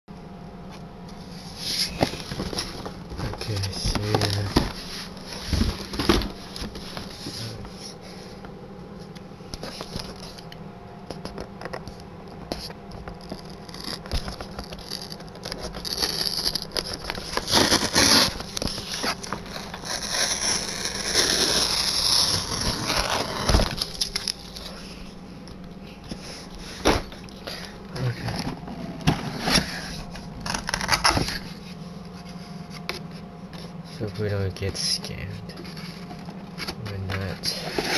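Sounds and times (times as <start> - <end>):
cardboard sliding and scraping: 19.8 - 23.8.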